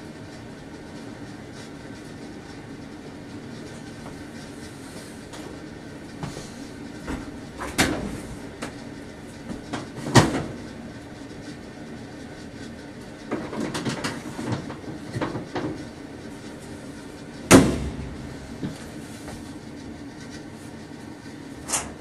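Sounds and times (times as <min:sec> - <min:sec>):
sheet-metal dryer panels clunking: 0:07.0 - 0:08.8, 0:09.5 - 0:10.8, 0:17.4 - 0:19.4.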